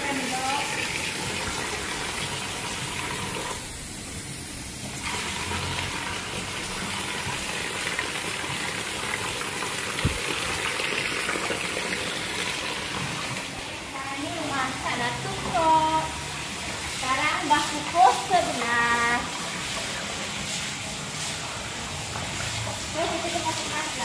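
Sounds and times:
water splashing onto a floor: 4.8 - 13.6, 14.5 - 24.0.

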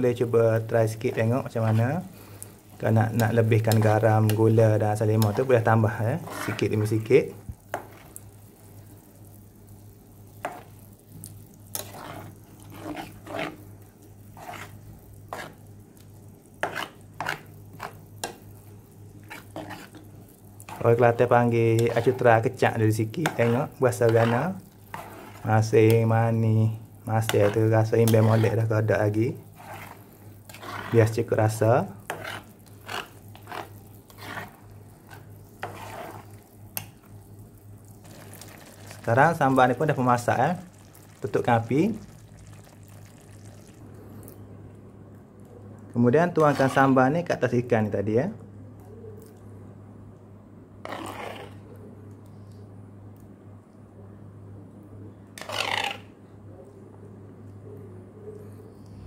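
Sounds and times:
spatula scraping a frying pan: 0.9 - 2.1, 3.2 - 7.1, 7.7 - 8.2, 10.4 - 10.8, 11.7 - 15.7, 16.5 - 18.5, 19.1 - 26.0, 27.1 - 36.9, 46.4 - 47.0, 50.8 - 51.7, 55.4 - 56.1.

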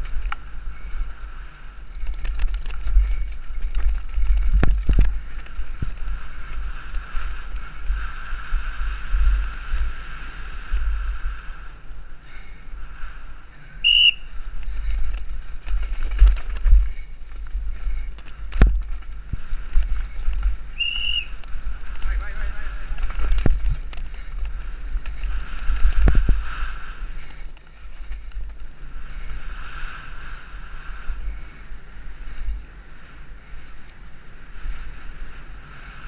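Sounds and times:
bike knocking and rattling: 0.0 - 11.0, 13.6 - 30.1
wind rumble on microphone: 0.0 - 36.0
short high whistles: 13.8 - 14.3, 20.8 - 21.3.

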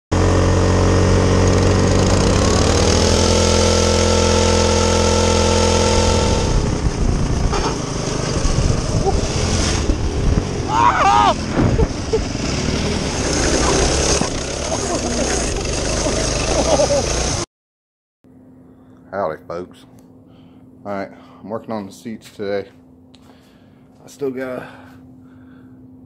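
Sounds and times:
go-kart engine running hard: 0.2 - 17.4.

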